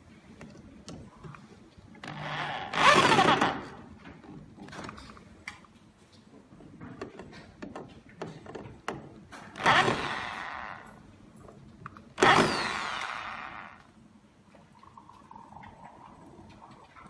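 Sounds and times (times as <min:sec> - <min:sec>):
power drill running: 0:02.1 - 0:03.7, 0:09.6 - 0:10.8, 0:12.2 - 0:13.8.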